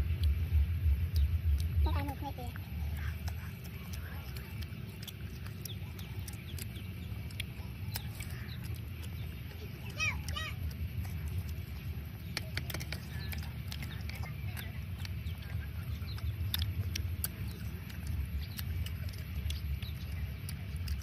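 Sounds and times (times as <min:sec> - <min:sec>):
wind rumble on microphone: 0:00.0 - 0:03.0
chewing smacks: 0:00.0 - 0:21.0.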